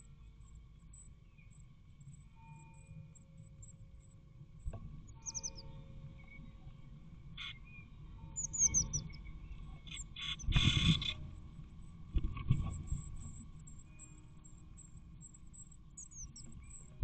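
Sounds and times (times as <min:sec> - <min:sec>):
faint steady hum: 0:00.0 - 0:17.0
birds chirping: 0:05.2 - 0:06.4, 0:07.4 - 0:11.2, 0:16.0 - 0:17.0.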